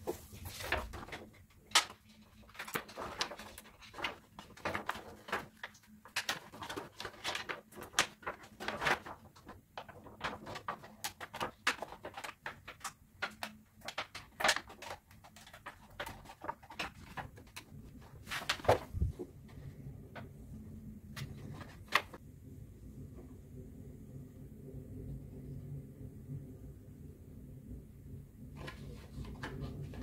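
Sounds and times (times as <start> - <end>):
plastic sheet crinkling: 0.0 - 19.6.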